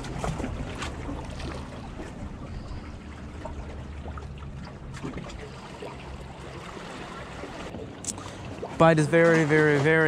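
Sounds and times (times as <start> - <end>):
steady low rumble: 0.0 - 9.1
small waves lapping on rocks: 4.9 - 10.0.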